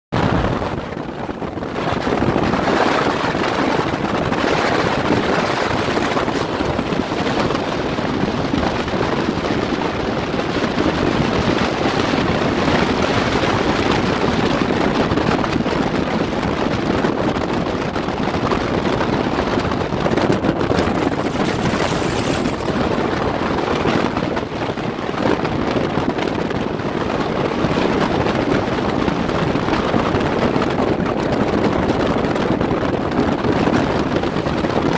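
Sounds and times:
boat on choppy water: 0.1 - 34.9
wind on microphone: 0.1 - 34.9
outboard motor running: 18.0 - 27.8.

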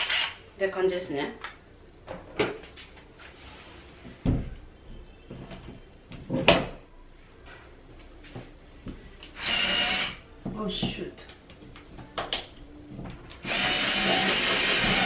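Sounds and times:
cordless screwdriver whirring: 0.0 - 0.4, 9.4 - 10.2, 13.4 - 15.0.

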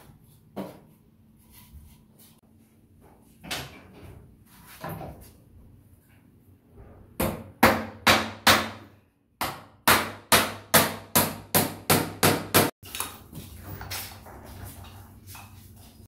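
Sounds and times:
hammer driving nails into wood: 7.2 - 12.8.

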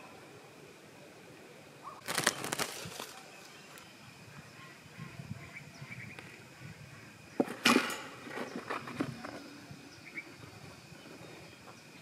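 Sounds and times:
fan guard clattering in pipe: 7.4 - 9.1
light metal rattles: 7.5 - 9.4.

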